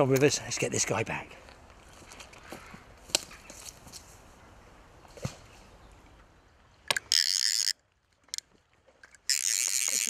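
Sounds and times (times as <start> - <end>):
fishing reel ratchet screaming: 7.1 - 7.7, 9.2 - 10.0.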